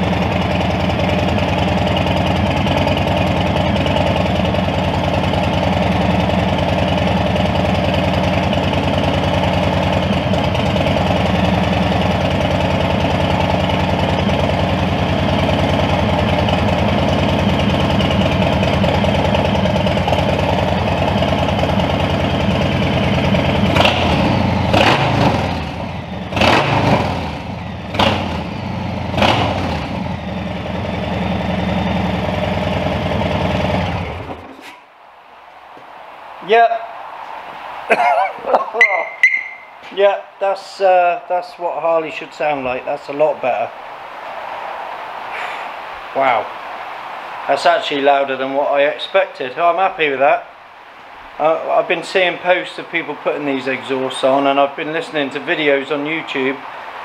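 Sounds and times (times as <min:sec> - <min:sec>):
motorcycle engine revving: 0:00.0 - 0:34.6.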